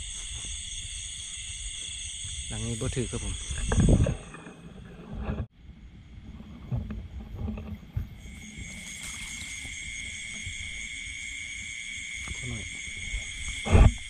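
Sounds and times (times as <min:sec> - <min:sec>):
high insect chirring: 0:00.0 - 0:04.6, 0:07.8 - 0:14.0.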